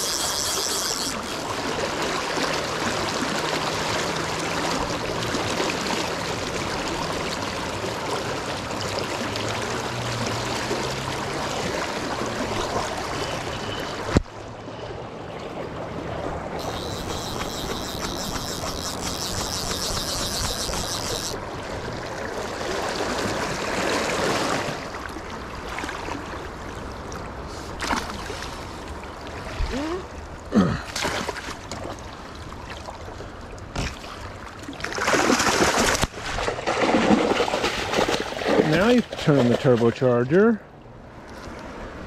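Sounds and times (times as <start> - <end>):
fishing gear knocks and rustles: 0.0 - 1.4, 16.6 - 21.4
river water rushing and lapping: 0.0 - 42.0.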